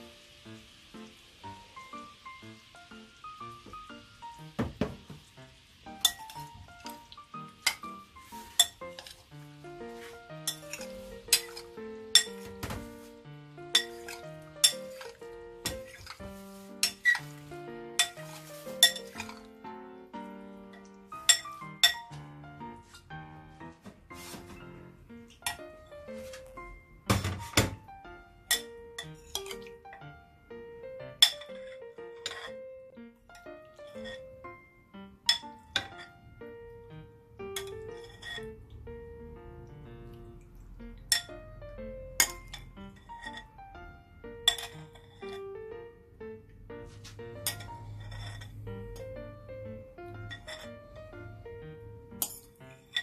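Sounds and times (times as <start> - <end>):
light background music: 0.0 - 53.0
metal spoon clinking on glass bowl: 10.5 - 12.4, 18.8 - 19.4, 21.3 - 22.1.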